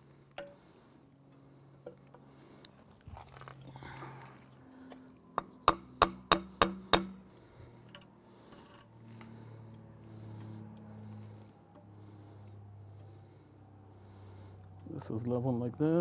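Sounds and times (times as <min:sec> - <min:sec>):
mallet knocking on concrete: 0:05.6 - 0:07.2.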